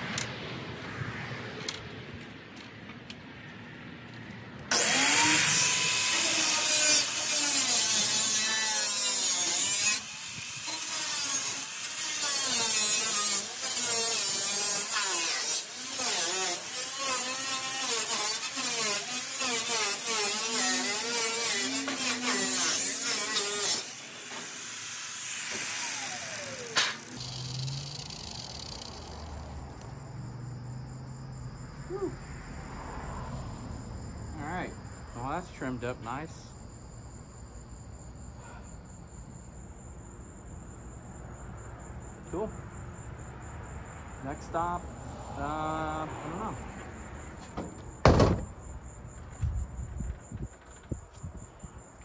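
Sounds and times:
angle grinder cutting metal: 0:04.7 - 0:29.8
grinder motor winding down: 0:04.7 - 0:29.9.

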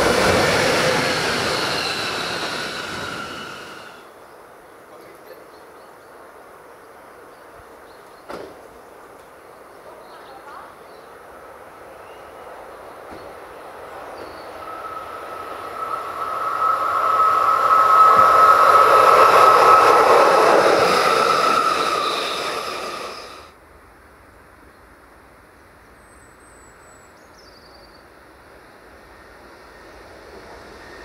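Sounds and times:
electric locomotive passing: 0:00.0 - 0:04.9, 0:09.0 - 0:23.6, 0:27.9 - 0:31.0
steady high tone: 0:14.5 - 0:23.5.

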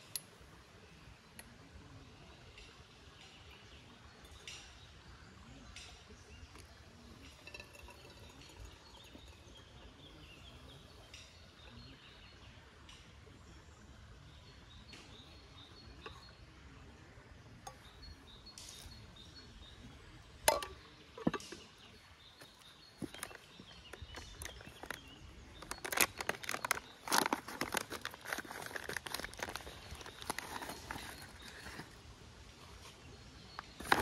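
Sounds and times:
faint bird chirps: 0:17.5 - 0:32.0
camping gear clattering: 0:20.4 - 0:32.0, 0:33.5 - 0:34.0.

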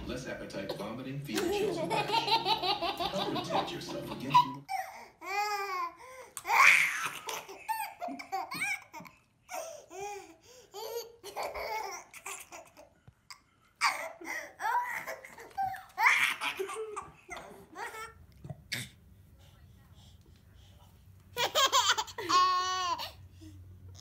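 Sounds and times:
baby laughing: 0:00.6 - 0:12.9, 0:13.8 - 0:18.2, 0:21.3 - 0:23.2.

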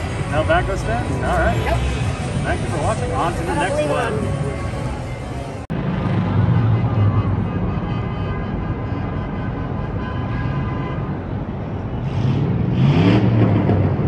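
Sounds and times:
city traffic rumble: 0:00.0 - 0:14.0
engine revving: 0:12.0 - 0:14.0.

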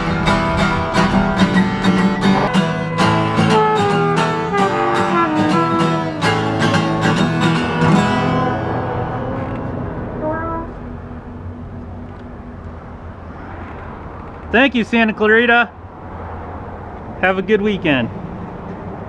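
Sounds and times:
trumpet melody: 0:00.0 - 0:11.2
acoustic guitar strumming: 0:00.0 - 0:12.0.

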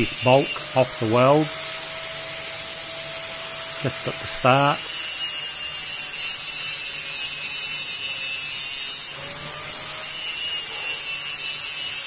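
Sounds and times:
angle grinder grinding metal: 0:00.0 - 0:12.0.

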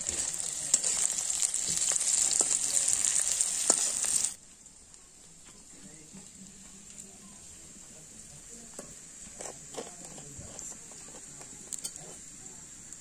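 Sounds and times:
steady high hiss: 0:00.0 - 0:13.0
steel bowls clinking and scraping: 0:09.3 - 0:12.4.

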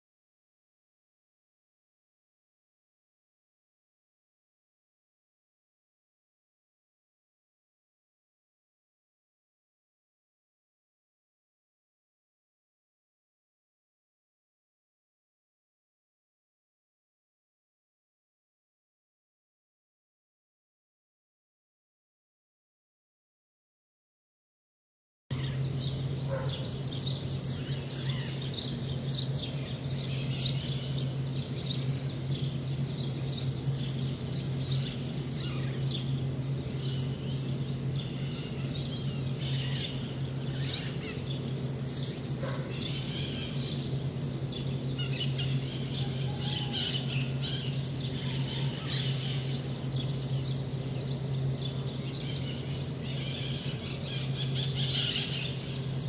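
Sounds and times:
birds chirping and calling: 0:25.3 - 0:56.0
steady low hum: 0:25.3 - 0:56.0.

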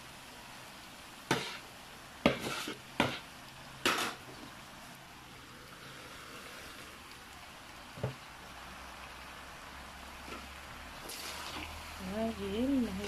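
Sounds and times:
spatula scraping a pan: 0:01.3 - 0:04.3.

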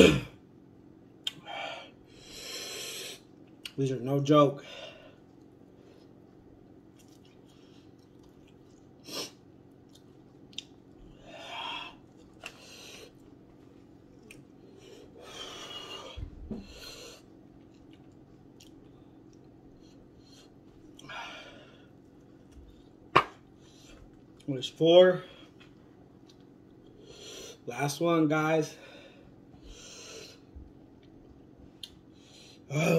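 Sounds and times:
low steady hum: 0:00.0 - 0:32.9
man chewing: 0:05.2 - 0:24.5, 0:25.5 - 0:27.6, 0:29.5 - 0:32.6.

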